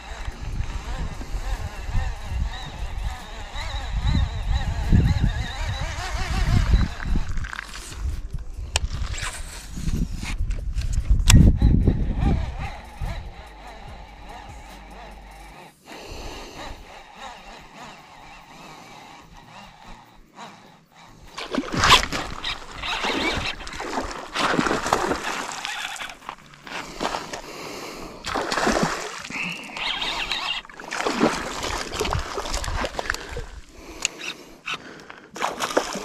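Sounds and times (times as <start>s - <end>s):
fish thrashing and splashing: 21.3s - 27.4s, 28.3s - 33.7s, 35.4s - 36.0s.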